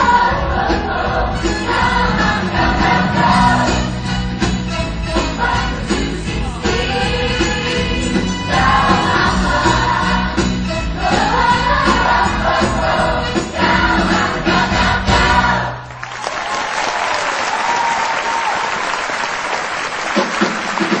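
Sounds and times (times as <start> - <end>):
ensemble singing with band: 0.0 - 15.8
audience applauding: 15.8 - 21.0
audience cheering: 15.9 - 21.0.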